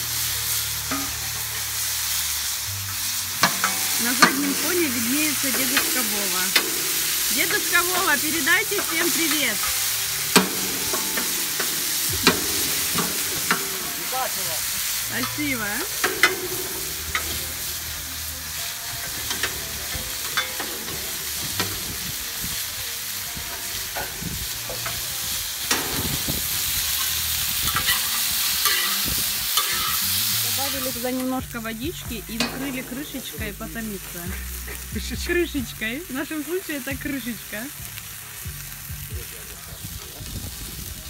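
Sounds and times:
dumplings sizzling in oil: 0.0s - 41.0s
metal ladle scraping a pan: 0.5s - 31.3s, 32.3s - 33.4s.

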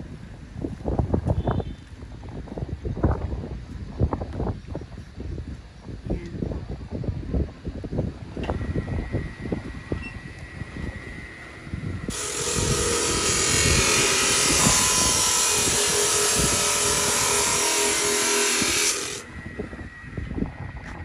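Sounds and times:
cut-off saw cutting: 12.1s - 20.1s.

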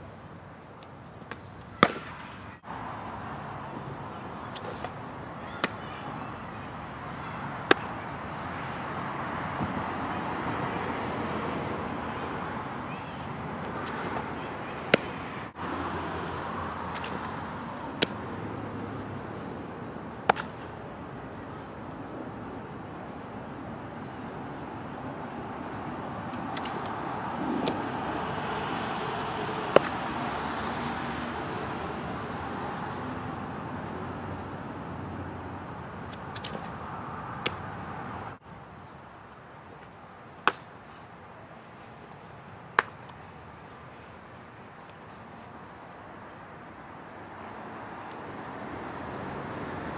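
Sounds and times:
outdoor background noise: 0.0s - 49.9s
ball smacking into glove: 1.3s - 2.4s, 4.5s - 5.8s, 7.7s - 8.0s, 13.6s - 15.2s, 16.9s - 17.4s, 18.0s - 18.2s, 20.2s - 20.7s, 26.3s - 27.0s, 29.6s - 30.0s, 36.1s - 37.6s, 40.4s - 40.7s, 42.8s - 43.1s.

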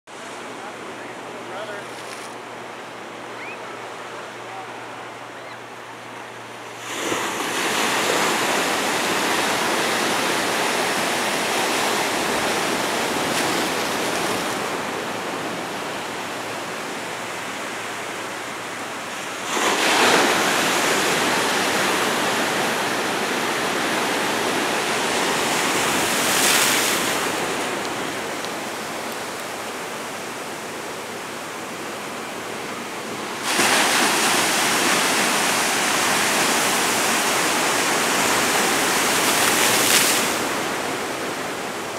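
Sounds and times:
waves breaking on rocks: 6.7s - 15.9s, 19.0s - 30.3s, 33.3s - 41.8s.

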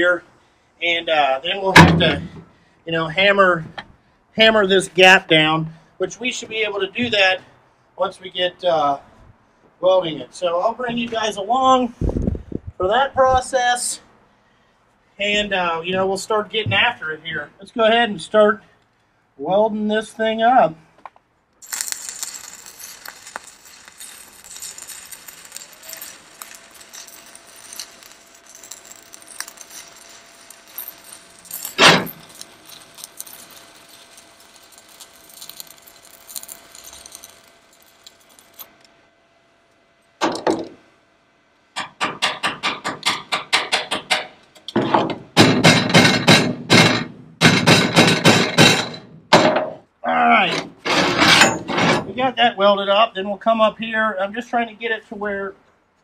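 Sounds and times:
welding arc crackling: 21.6s - 38.7s.

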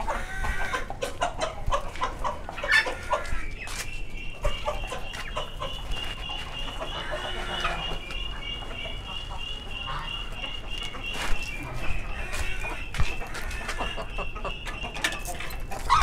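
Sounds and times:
hens clucking: 0.0s - 16.0s
short knocks and scuffs: 12.3s - 13.8s.

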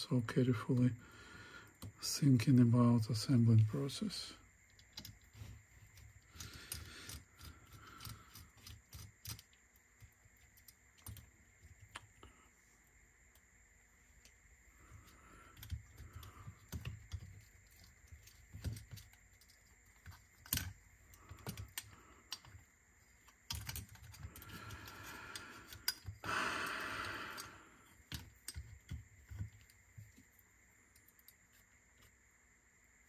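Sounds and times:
tools and small parts clicking: 4.7s - 12.1s, 15.5s - 32.1s.

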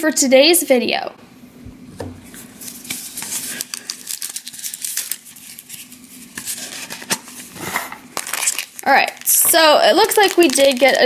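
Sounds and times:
soft plastic rustling: 2.2s - 7.5s, 8.2s - 11.0s.

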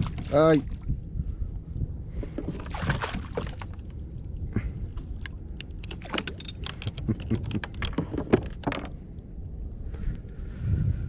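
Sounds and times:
metallic clicks and rattles: 5.6s - 8.9s.

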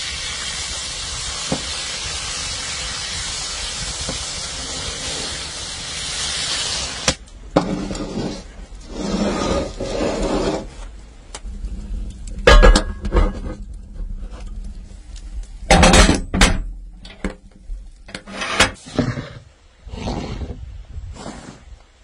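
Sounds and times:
beer hissing in a hot pan: 0.0s - 16.1s
cast iron pan scraping and clanking: 7.5s - 14.8s, 15.7s - 17.4s, 18.1s - 19.5s.

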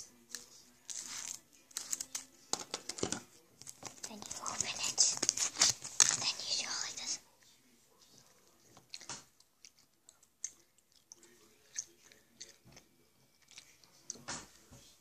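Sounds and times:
person chewing gum: 8.6s - 14.3s.

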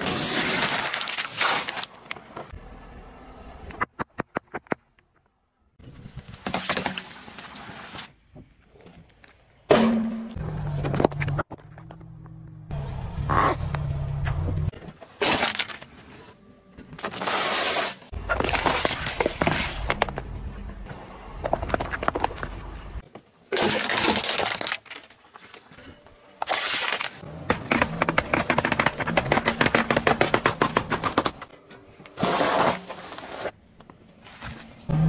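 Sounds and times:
drink cans crumpling: 23.5s - 25.6s
car tyre crushing objects: 26.4s - 33.6s.

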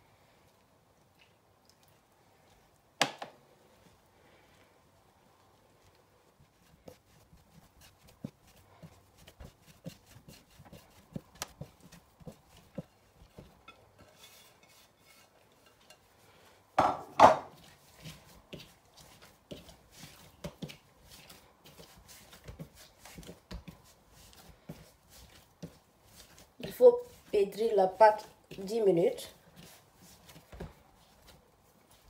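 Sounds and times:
hands kneading dough: 0.2s - 32.0s.

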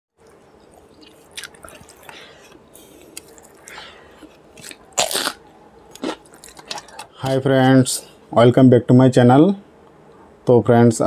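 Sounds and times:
wet chewing and mouth sounds: 0.2s - 7.1s.

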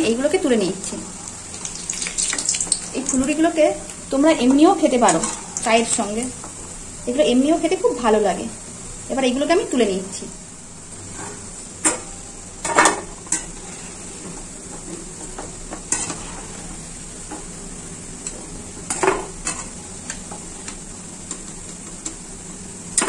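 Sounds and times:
fritters sizzling in hot oil: 0.0s - 23.0s
metal spatula scraping pan: 15.9s - 16.7s.

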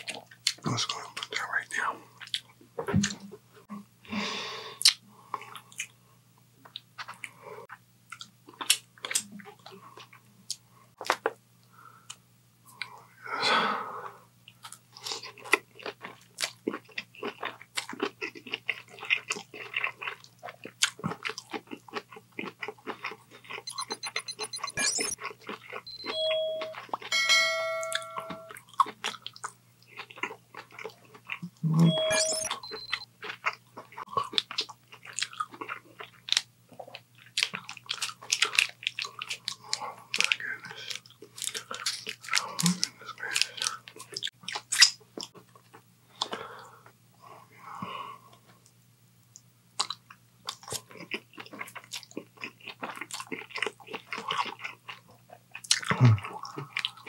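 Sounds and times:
person chewing food: 2.2s - 3.2s, 4.8s - 6.0s, 6.6s - 11.4s, 14.5s - 27.2s, 27.9s - 47.0s, 49.3s - 57.0s
short tone: 23.7s - 25.2s, 25.9s - 28.6s, 31.8s - 33.0s
bell chime: 26.0s - 28.6s, 31.9s - 32.5s.

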